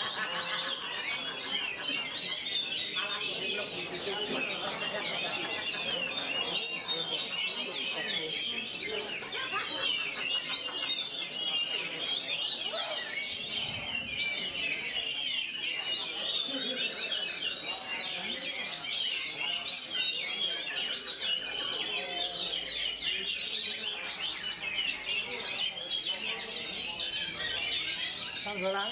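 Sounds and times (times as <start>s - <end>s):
bird singing chirps and whistles: 10.4s - 28.9s.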